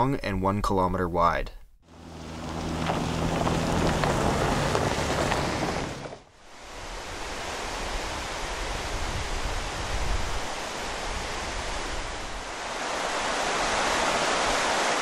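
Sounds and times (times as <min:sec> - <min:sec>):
creek running over rocks: 0:01.9 - 0:15.0
wind on microphone: 0:06.6 - 0:14.7.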